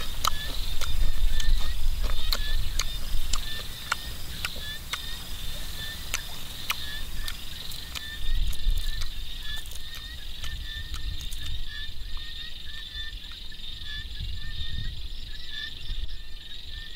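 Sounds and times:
crunching while chewing: 0:00.0 - 0:12.3
high insect chorus: 0:00.0 - 0:16.9
wind rumble on microphone: 0:00.0 - 0:16.9.

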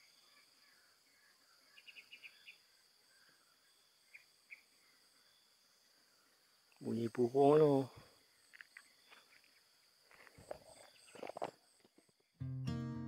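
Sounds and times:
faint bird chirps: 0:00.0 - 0:09.8.

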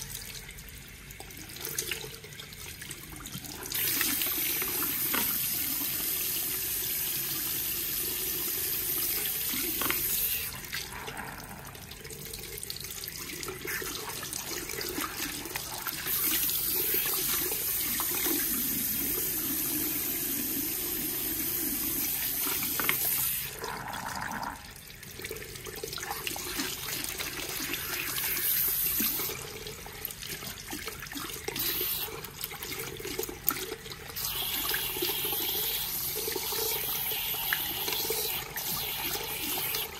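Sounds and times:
hand shower spraying water: 0:09.1 - 0:10.7, 0:31.6 - 0:32.2.

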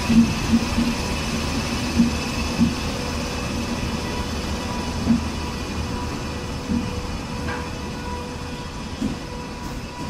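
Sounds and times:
electric locomotive passing: 0:00.0 - 0:10.0
dull knocks from train wheels: 0:01.9 - 0:02.8, 0:05.0 - 0:05.4, 0:06.6 - 0:07.8, 0:09.0 - 0:09.3.

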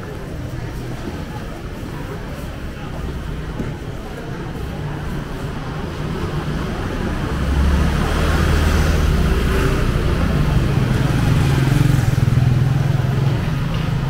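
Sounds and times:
busy street noise: 0:00.0 - 0:14.0
scooter engine running: 0:09.1 - 0:14.0.

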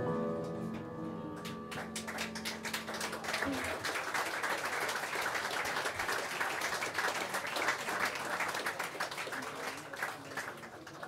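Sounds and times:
audience applauding: 0:01.4 - 0:11.0.

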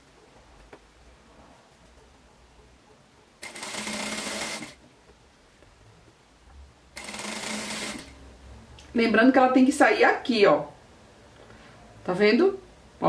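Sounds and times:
sewing machine stitching: 0:03.4 - 0:04.8, 0:07.0 - 0:08.2.

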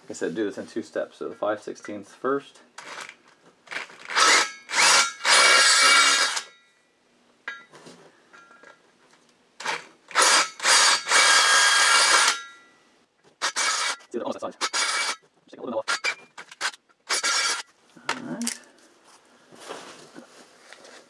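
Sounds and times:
cordless drill whining into steel: 0:03.7 - 0:06.6, 0:09.6 - 0:12.7, 0:13.4 - 0:15.2, 0:15.8 - 0:17.7.

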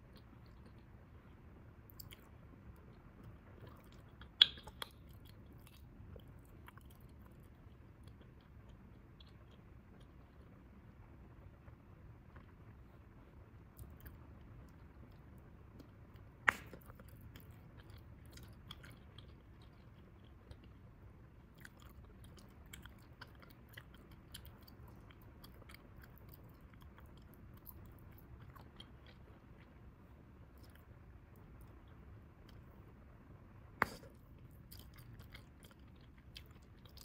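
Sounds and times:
gum chewing smacks: 0:01.9 - 0:10.5, 0:13.8 - 0:20.9
sharp gum snap: 0:16.4 - 0:16.9.

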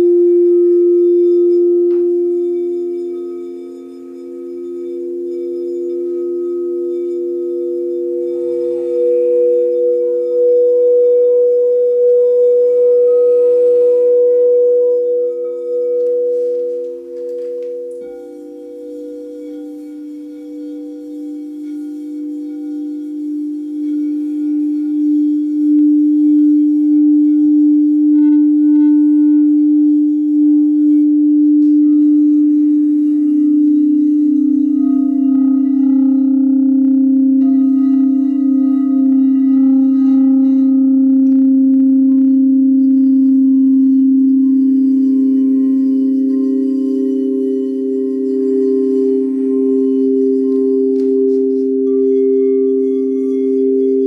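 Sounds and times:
singing bowls ringing: 0:00.0 - 0:54.0
singing bowl struck with mallet: 0:28.2 - 0:54.0.

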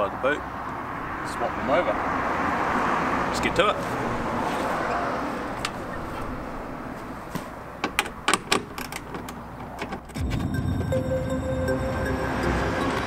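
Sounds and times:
traffic noise: 0:00.0 - 0:13.0
car boot lid opening: 0:07.2 - 0:10.9
tools clicking and knocking: 0:07.8 - 0:10.2
music: 0:10.2 - 0:13.0.

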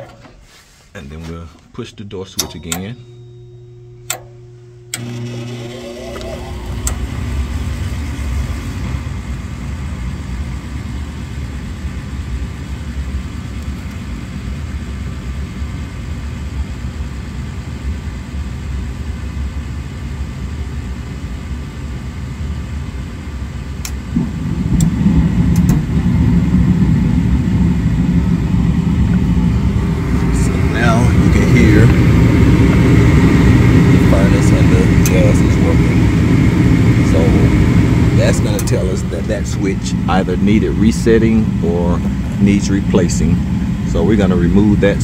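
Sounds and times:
furnace motor rumble: 0:00.0 - 0:45.0.

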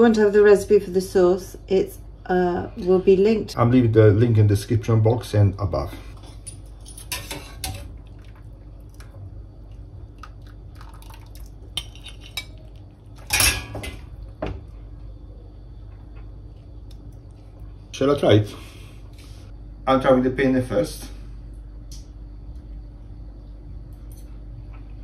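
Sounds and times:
utensils clinking on pots: 0:06.2 - 0:08.0, 0:11.8 - 0:14.1.

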